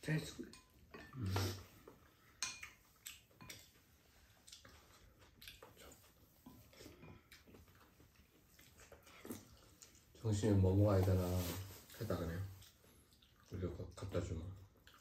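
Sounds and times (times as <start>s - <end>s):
utensils clinking on ceramic bowls: 0.2s - 1.2s, 2.3s - 2.8s, 3.4s - 3.8s.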